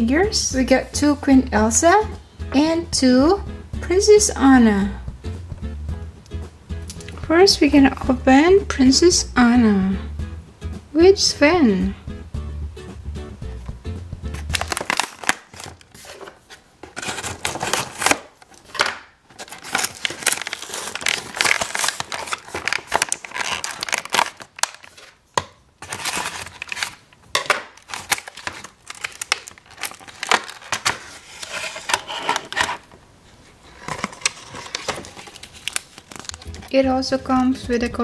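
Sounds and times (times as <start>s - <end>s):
cardboard tearing: 14.4s - 25.2s, 25.8s - 32.9s, 33.7s - 36.7s
plastic blister pack crinkling: 14.4s - 32.9s, 33.7s - 36.8s.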